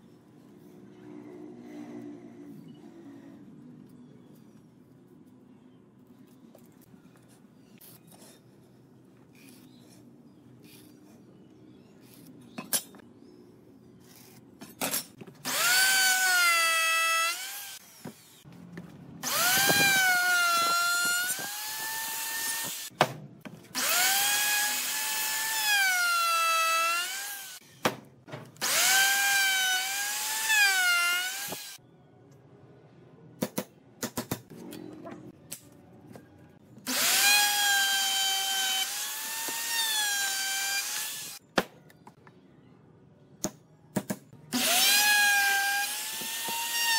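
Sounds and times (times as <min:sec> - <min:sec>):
power tool whining into wood: 0:19.2 - 0:22.9, 0:23.8 - 0:27.6, 0:28.6 - 0:31.8, 0:36.9 - 0:41.4, 0:44.6 - 0:46.9.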